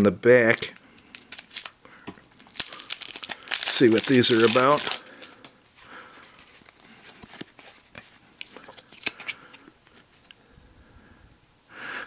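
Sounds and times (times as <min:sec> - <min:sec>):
cards rustling and clicking: 0:01.0 - 0:01.8, 0:02.4 - 0:05.5, 0:06.4 - 0:10.4.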